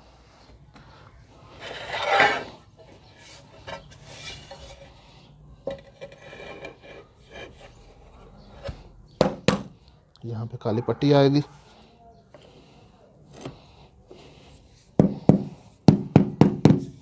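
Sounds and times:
tiles scraping: 0:01.5 - 0:05.1, 0:05.7 - 0:08.8.

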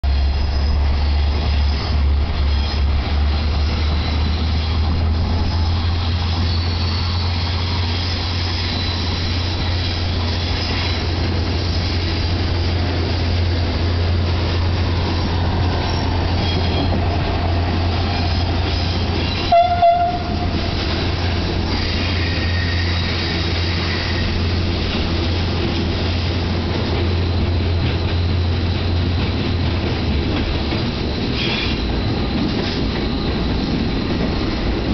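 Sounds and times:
diesel locomotive droning: 0:00.0 - 0:34.9
faint wheel squeal: 0:00.1 - 0:12.0, 0:14.9 - 0:17.0, 0:18.0 - 0:20.5, 0:21.7 - 0:24.6, 0:31.2 - 0:33.7
locomotive horn toot: 0:19.2 - 0:20.6.

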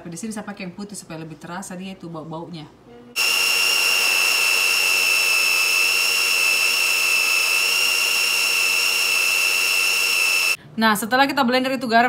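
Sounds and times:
blender motor whining: 0:03.2 - 0:10.6.

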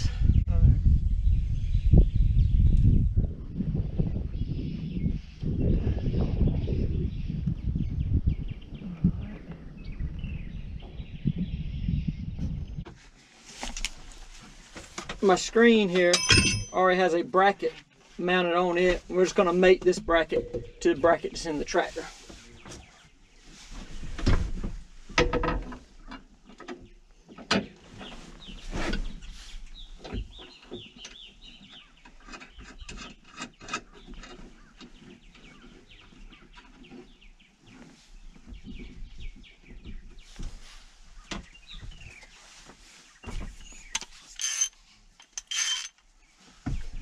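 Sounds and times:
birds chirping faintly: 0:26.0 - 0:47.0.

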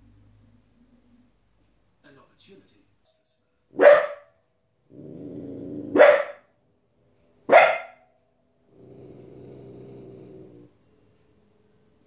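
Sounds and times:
puppy barking: 0:03.8 - 0:04.4, 0:05.9 - 0:06.5, 0:07.5 - 0:08.1
puppy growling: 0:04.9 - 0:06.3, 0:08.7 - 0:10.8.

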